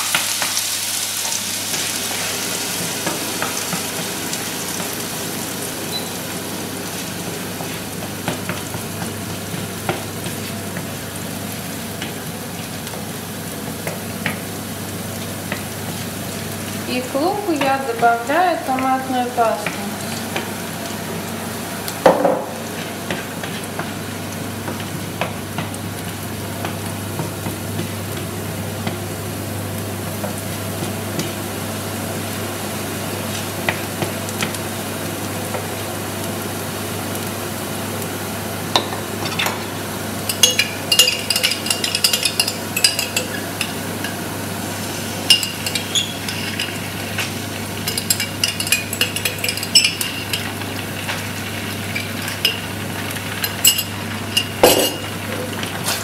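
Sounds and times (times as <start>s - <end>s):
onion sizzling in a frying pan: 0.0s - 56.0s
spoon clinking and scraping a pan: 40.3s - 44.2s, 45.3s - 46.8s, 47.8s - 50.6s, 53.3s - 55.1s.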